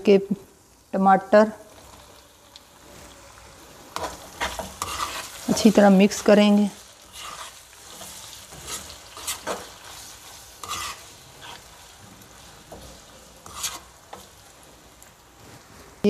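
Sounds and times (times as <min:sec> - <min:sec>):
faint sizzle of frying: 0:00.0 - 0:16.0
spatula scraping a pan: 0:02.8 - 0:14.6.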